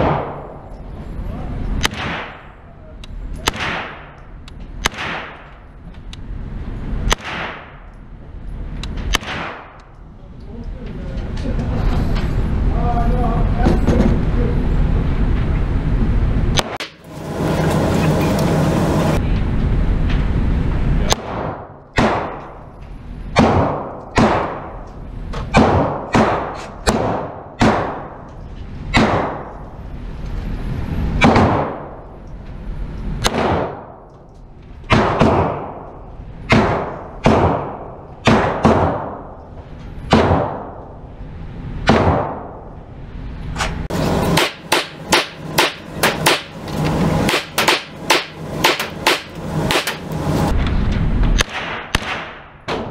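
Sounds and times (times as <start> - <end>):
echoing gunshots indoors: 0.0 - 0.8, 1.8 - 2.7, 3.4 - 5.7, 7.0 - 8.0, 9.0 - 10.0, 21.1 - 22.7, 23.3 - 24.9, 25.5 - 28.3, 28.9 - 29.8, 31.1 - 32.1, 33.2 - 34.1, 34.8 - 41.1, 41.7 - 42.8, 43.9 - 50.5, 51.1 - 52.9
electric target carrier running: 14.8 - 21.1, 43.9 - 51.2.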